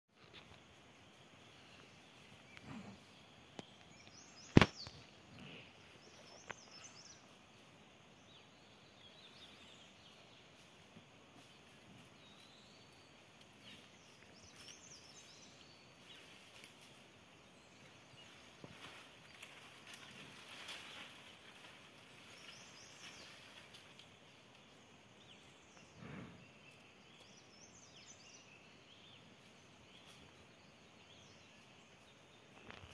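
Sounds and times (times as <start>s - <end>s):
faint warbling birdsong: 0.2s - 32.9s
sharp crack: 4.4s - 5.0s.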